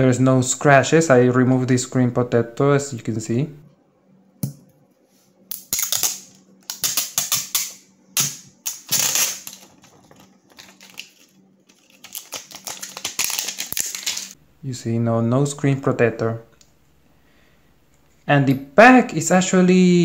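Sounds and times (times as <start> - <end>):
plastic film crackling: 8.7 - 14.4.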